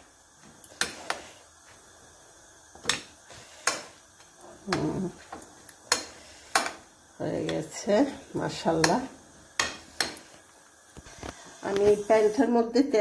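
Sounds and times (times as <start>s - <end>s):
spoon stirring wet mixture: 2.8s - 11.9s.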